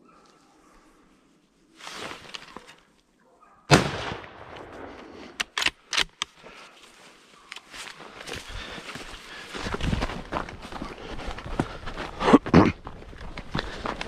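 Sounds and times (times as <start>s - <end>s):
rustle: 0.2s - 3.2s
loud gunshot: 3.7s - 5.1s.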